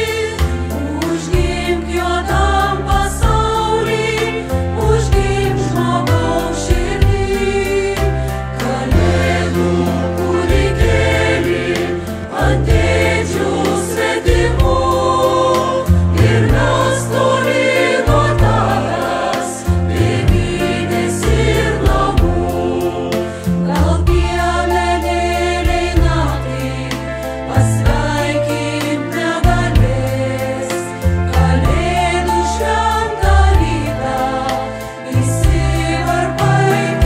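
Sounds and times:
choir singing: 0.0 - 37.0.

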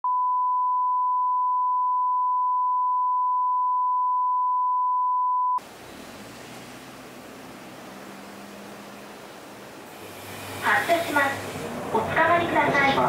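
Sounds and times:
sine test tone: 0.0 - 5.6
bus cabin hiss and hum: 5.6 - 13.0.

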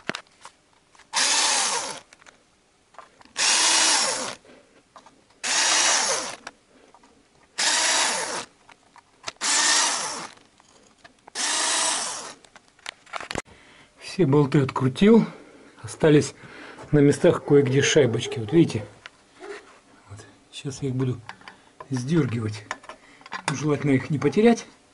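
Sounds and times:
cordless drill bursts: 1.1 - 2.0, 3.4 - 4.4, 5.4 - 6.4, 7.6 - 8.5, 9.4 - 10.4, 11.4 - 12.4.

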